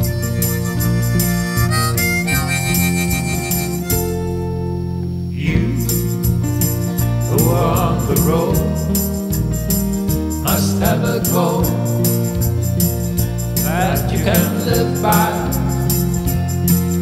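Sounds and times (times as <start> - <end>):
strummed acoustic guitars: 0.0 - 17.0
man singing harmony: 5.3 - 6.0, 7.2 - 9.1, 10.4 - 12.3, 13.6 - 16.2.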